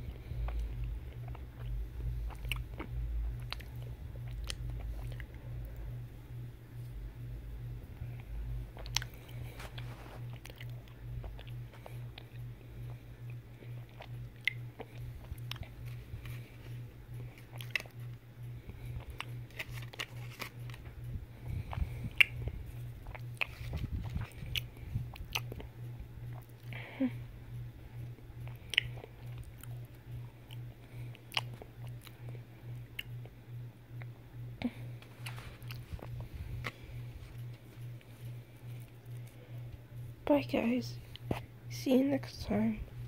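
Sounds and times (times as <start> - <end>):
chewing and biting: 0.0 - 5.9, 8.0 - 26.7, 28.0 - 33.4, 34.0 - 40.1
steady low hum: 0.0 - 43.0
foil wrapper crackling: 19.0 - 21.1.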